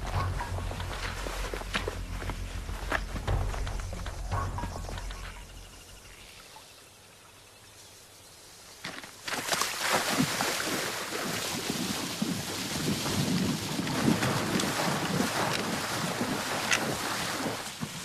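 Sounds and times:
feet splashing through shallow water: 0:00.0 - 0:05.4, 0:09.1 - 0:18.0.

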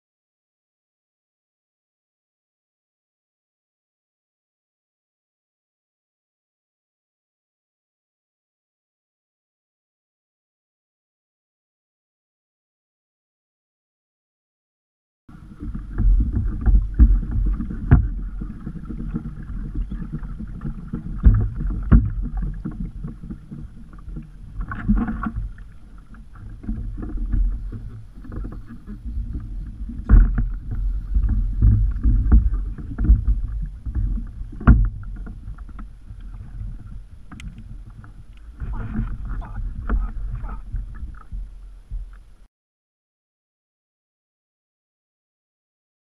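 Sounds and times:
water slapping against kayak hull: 0:15.3 - 0:42.3
sharp knocks against hull: 0:16.0 - 0:18.2, 0:21.2 - 0:22.5, 0:30.0 - 0:35.9.

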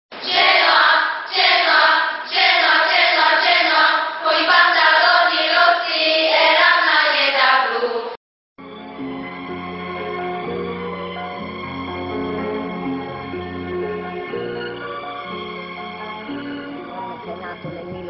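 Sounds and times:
group of voices singing: 0:00.2 - 0:08.2.

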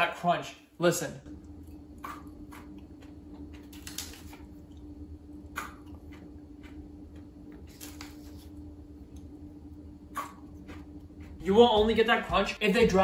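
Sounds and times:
steady low hum: 0:00.0 - 0:13.0
sprinkles crunching and cracking: 0:03.1 - 0:04.5, 0:07.7 - 0:08.5.

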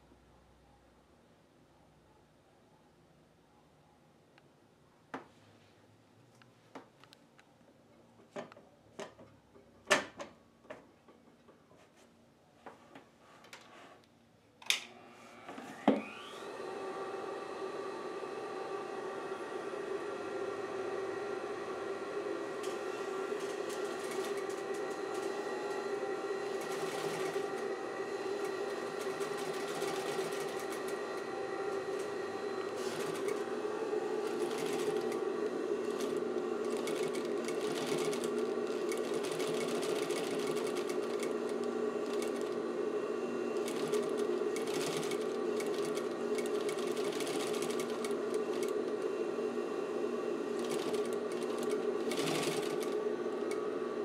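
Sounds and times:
motor whining and humming: 0:15.4 - 0:54.0
sewing machine sewing: 0:22.3 - 0:54.0.

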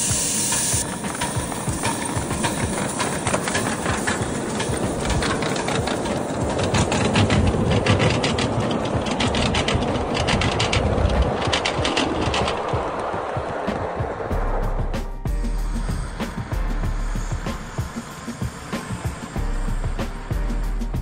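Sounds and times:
miniature steam train rumbling: 0:00.0 - 0:21.0
wheels clicking on rail joints: 0:00.5 - 0:14.4, 0:15.9 - 0:20.6.

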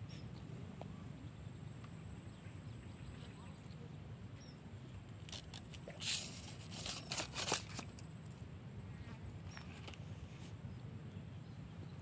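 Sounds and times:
landing net rustling scrapes: 0:06.0 - 0:07.9.

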